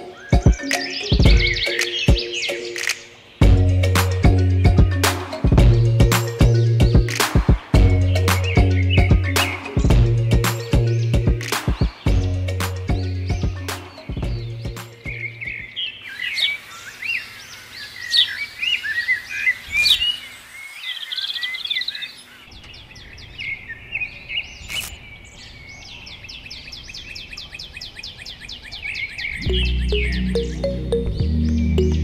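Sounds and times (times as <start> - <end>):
bird trilling: 0.0 - 3.2
birds chirping and whistling: 0.0 - 32.0.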